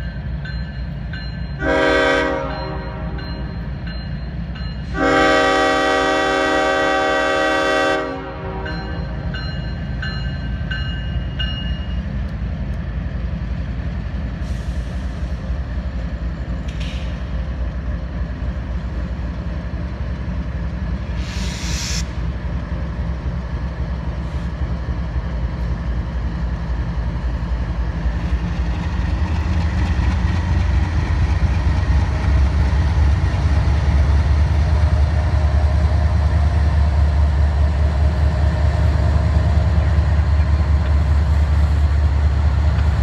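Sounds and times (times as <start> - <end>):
diesel locomotive rumble: 0.0 - 43.0
brief hiss: 21.1 - 22.2.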